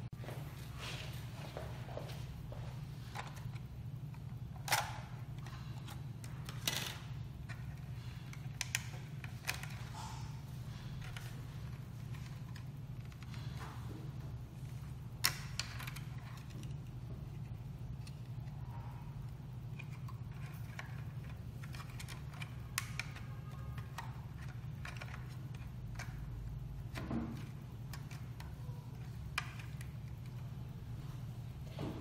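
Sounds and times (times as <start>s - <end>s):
steady low hum: 0.0s - 32.0s
clicks and taps of plastic parts: 3.1s - 10.0s, 19.6s - 30.5s.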